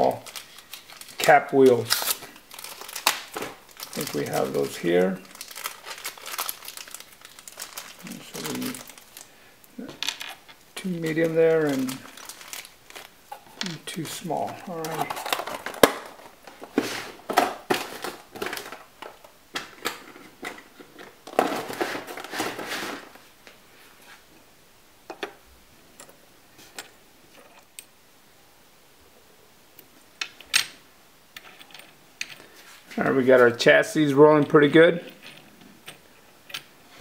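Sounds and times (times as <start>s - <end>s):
rustling: 0.0s - 24.4s, 31.3s - 33.7s.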